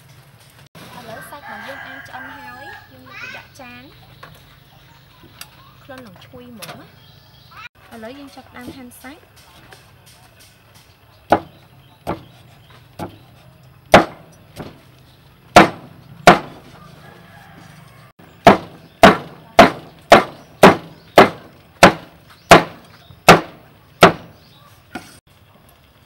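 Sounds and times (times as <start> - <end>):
cleaver chopping on wooden block: 11.3 - 12.3, 13.9 - 14.8, 15.6 - 16.6, 18.4 - 24.4.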